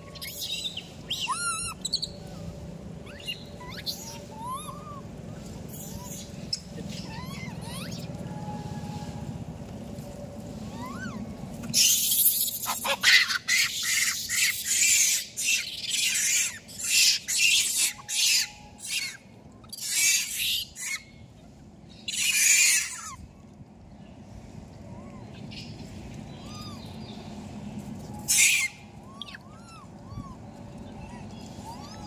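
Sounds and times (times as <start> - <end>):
monkey screeching: 0.2 - 2.1, 3.1 - 5.0, 6.9 - 8.1, 10.8 - 21.0, 22.1 - 23.2, 28.2 - 30.2.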